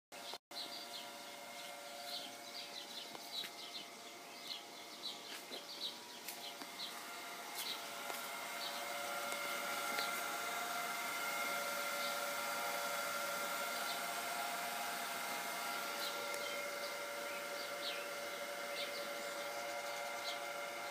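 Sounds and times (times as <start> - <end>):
birds chirping: 0.2 - 20.9
pool pump motor hum: 0.2 - 20.9.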